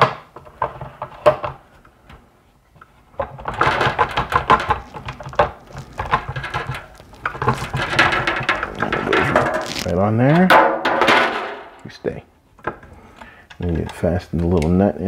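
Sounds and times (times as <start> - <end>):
plastic parts clicking and clattering: 0.0 - 2.2, 2.8 - 11.9.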